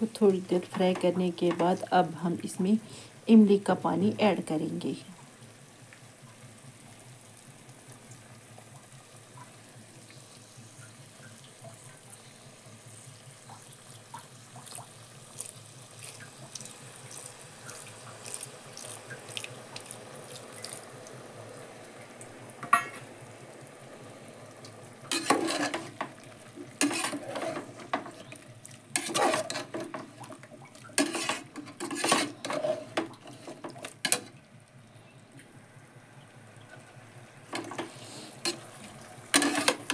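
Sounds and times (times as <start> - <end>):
potatoes sizzling in oil: 0.0 - 34.2, 37.4 - 39.9
metal spoon scraping a pot: 25.1 - 26.0, 26.8 - 28.3, 29.0 - 30.0, 31.0 - 34.3, 37.6 - 38.7, 39.3 - 39.9.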